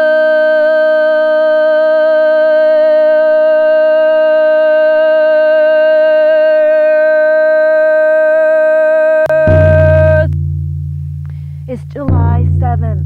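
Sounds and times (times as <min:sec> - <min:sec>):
woman singing long note: 0:00.0 - 0:10.3
steady low tone: 0:00.0 - 0:13.0.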